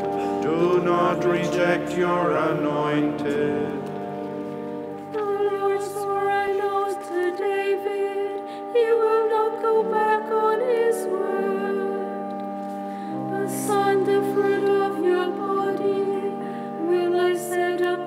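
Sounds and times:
sustained low chords: 0.0 - 6.6.

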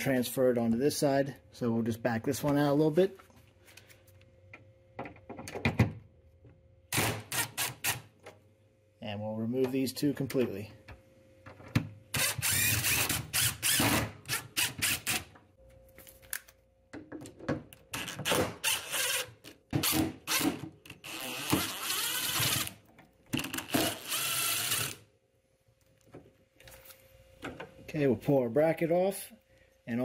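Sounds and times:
cordless drill running: 12.2 - 15.2, 21.0 - 22.7, 23.8 - 25.0.

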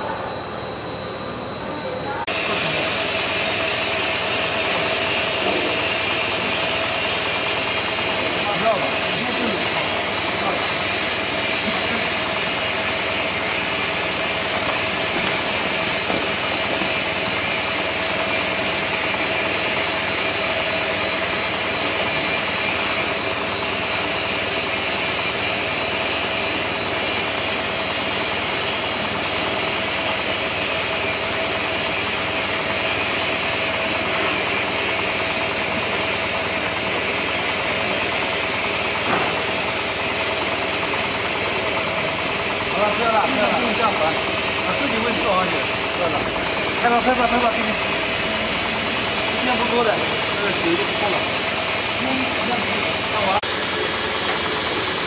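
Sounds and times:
low machine hum: 0.0 - 42.9
high machine whine: 0.0 - 55.0
machine mechanical drone: 0.0 - 55.0.

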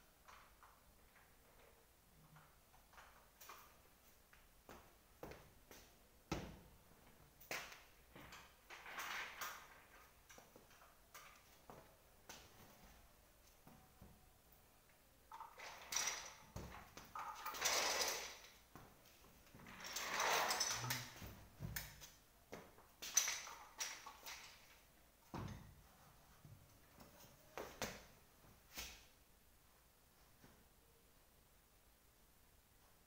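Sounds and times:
chair parts scraping and rustling: 15.3 - 18.7, 19.5 - 22.2.

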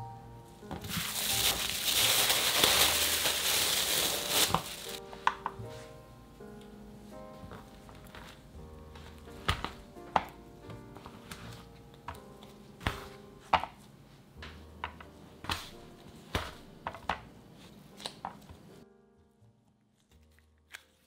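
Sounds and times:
soft background music: 0.0 - 21.0.

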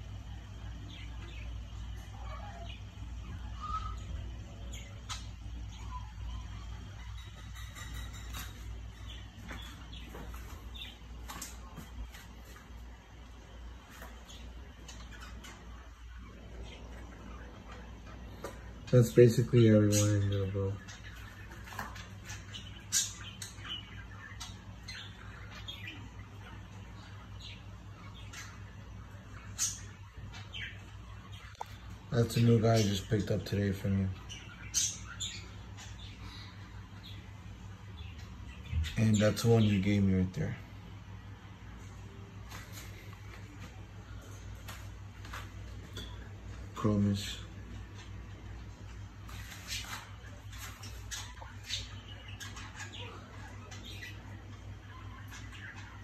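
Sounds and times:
aquarium equipment hum: 0.0 - 56.0.

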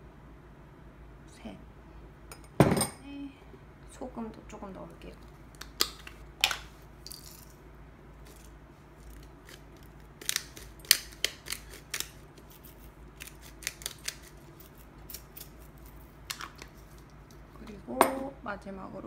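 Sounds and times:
salt grinder crunching crystals: 8.2 - 17.0.

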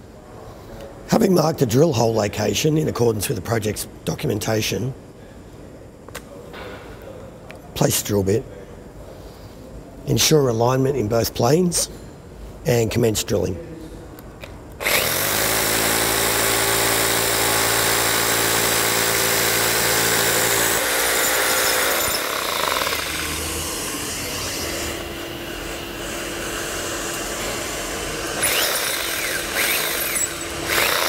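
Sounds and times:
hammer drill boring into concrete: 14.8 - 31.0.

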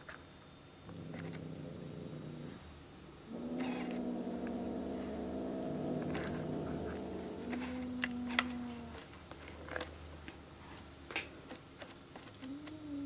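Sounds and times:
cat purring: 0.8 - 9.1.

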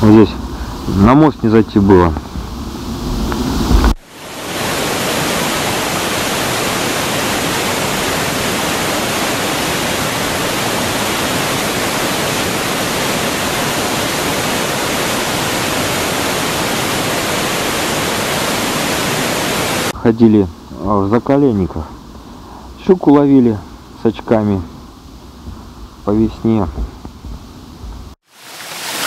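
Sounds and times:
river rushing: 1.9 - 20.0, 28.2 - 29.0.

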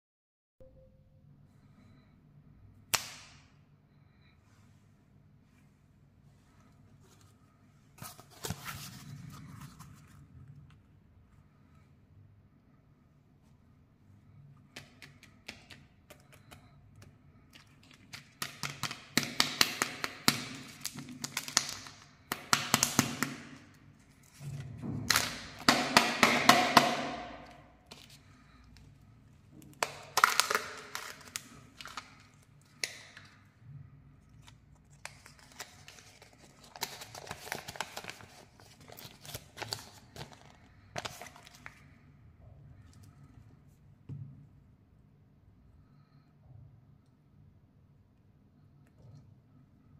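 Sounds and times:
plastic packet crinkling: 29.6 - 33.3, 34.3 - 41.8.

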